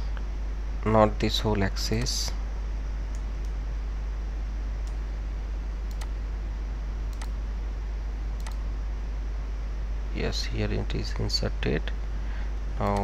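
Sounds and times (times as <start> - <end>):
low electrical hum: 0.0 - 13.0
computer mouse clicks: 5.9 - 6.1, 7.1 - 7.4, 8.4 - 8.6.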